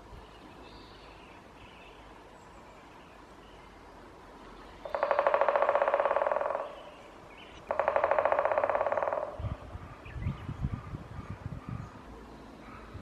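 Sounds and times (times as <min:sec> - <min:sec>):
woodpecker drumming on tree trunk: 0:04.8 - 0:10.1.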